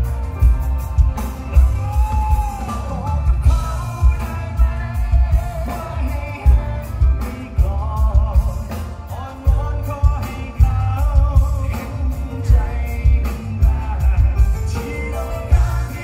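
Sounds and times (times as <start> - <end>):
heavy bass drum beat: 0.0 - 16.0
man singing into microphone: 1.5 - 16.0.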